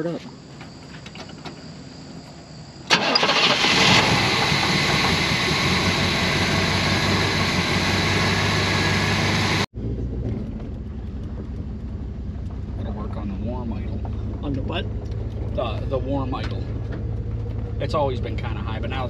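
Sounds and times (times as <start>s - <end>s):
car engine running at high idle: 3.1s - 19.0s.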